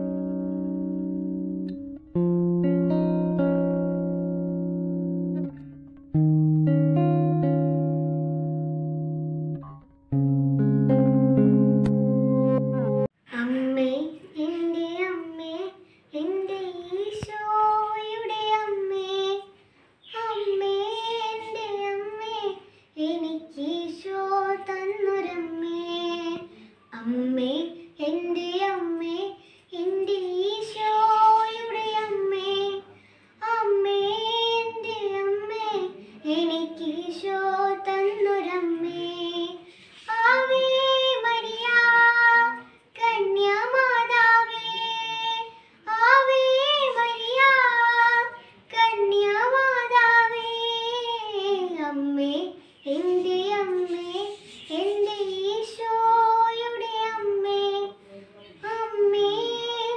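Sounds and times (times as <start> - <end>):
girl singing solo: 12.6 - 58.0.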